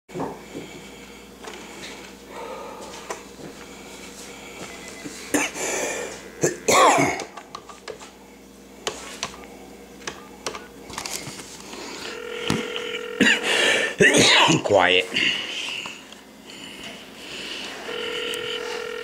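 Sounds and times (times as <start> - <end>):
steady phone call tone: 4.3 - 6.7, 12.0 - 14.0, 17.8 - 19.0.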